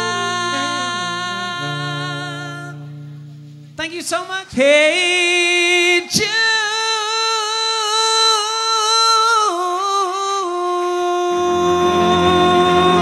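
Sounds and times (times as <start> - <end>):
keyboard chords: 0.0 - 3.8, 11.4 - 13.0
alto saxophone slow melody: 0.0 - 3.9, 10.9 - 13.0
bass line: 0.0 - 3.9, 11.4 - 13.0.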